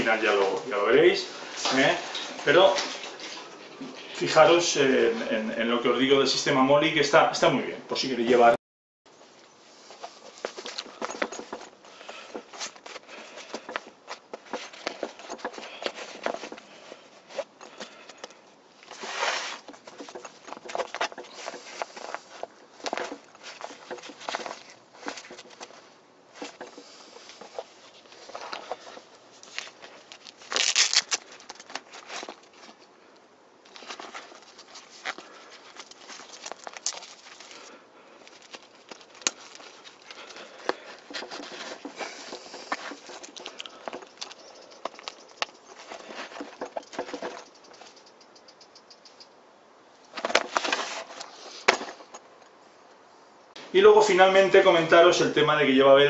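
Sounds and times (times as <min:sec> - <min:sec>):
fabric rustling: 0:09.6 - 0:48.0, 0:50.0 - 0:52.4
rasping fabric noise: 0:18.9 - 0:29.1.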